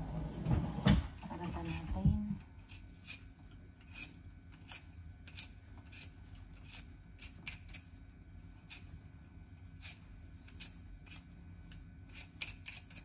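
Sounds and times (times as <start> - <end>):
peeler scraping potato skin: 2.6 - 9.0, 9.7 - 13.0.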